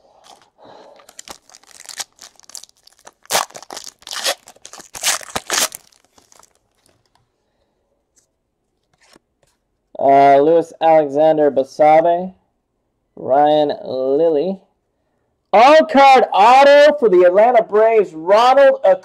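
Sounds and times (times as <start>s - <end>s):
wrapper tearing and crinkling: 0.2s - 7.1s.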